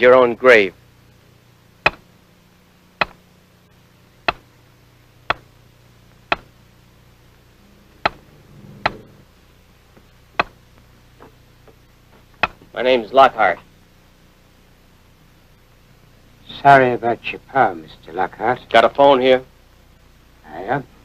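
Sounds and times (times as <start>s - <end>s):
mallet striking chisel on stone: 1.8s - 2.0s, 3.0s - 3.2s, 6.3s - 6.5s, 10.4s - 10.6s.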